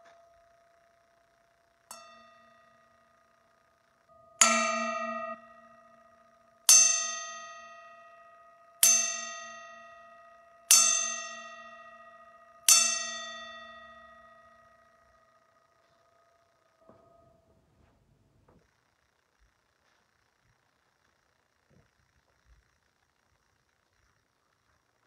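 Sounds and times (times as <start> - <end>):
bell ringing: 4.1 - 15.3.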